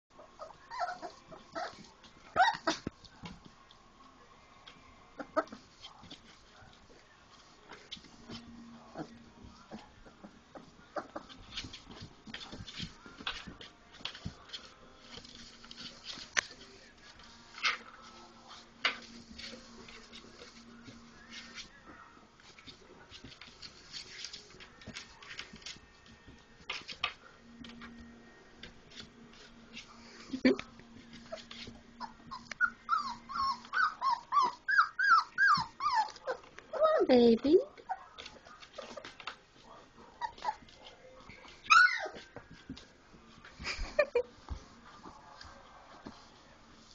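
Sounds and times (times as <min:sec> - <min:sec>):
faint low hum: 0:00.1 - 0:46.9
puppy paws tapping and scuffling: 0:00.2 - 0:46.9
puppies yipping and whimpering: 0:00.3 - 0:02.8, 0:31.2 - 0:37.1, 0:40.2 - 0:40.7, 0:41.6 - 0:42.2.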